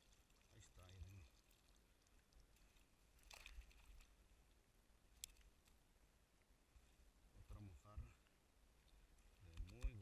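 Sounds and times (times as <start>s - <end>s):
rustling of wet net: 0.0s - 4.2s.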